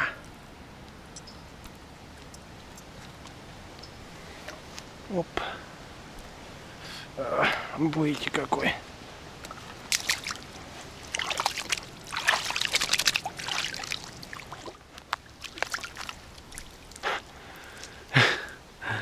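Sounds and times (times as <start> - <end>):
water dripping: 0.2 - 4.6, 9.4 - 18.6
water splashing and trickling: 6.2 - 19.0.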